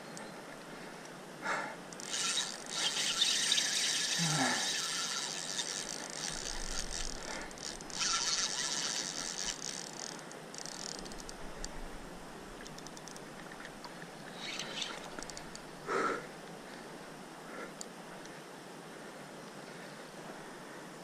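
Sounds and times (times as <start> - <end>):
fishing reel drag buzzing: 1.9 - 11.7, 14.3 - 15.7
reel ticks: 1.9 - 11.8, 12.6 - 15.7.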